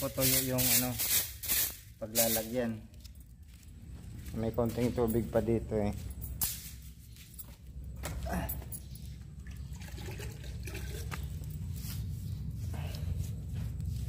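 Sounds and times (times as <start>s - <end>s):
shallow water splashing and trickling: 9.4s - 11.4s.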